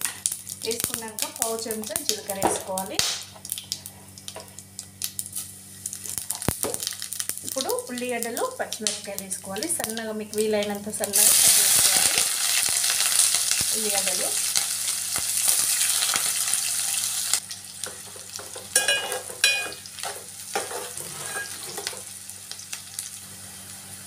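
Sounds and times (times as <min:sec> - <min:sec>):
onions sizzling in hot oil: 0:00.0 - 0:24.0
metal spoon scraping pot: 0:20.6 - 0:21.8.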